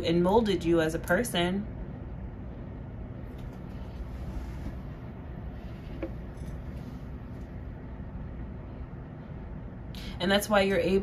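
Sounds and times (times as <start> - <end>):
low background rumble: 0.0 - 11.0
soft rustles: 3.3 - 7.5.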